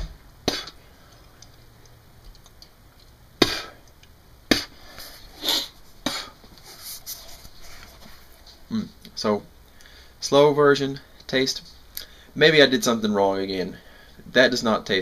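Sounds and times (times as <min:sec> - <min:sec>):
rustling and scraping: 0:04.9 - 0:08.7.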